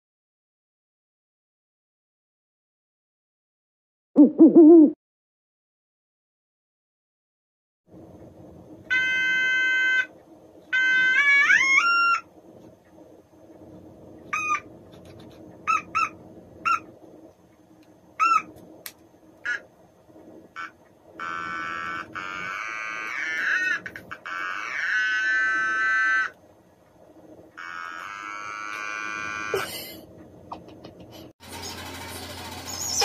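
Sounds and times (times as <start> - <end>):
electronic toy instrument notes: 8.9 - 10.1, 10.7 - 12.2.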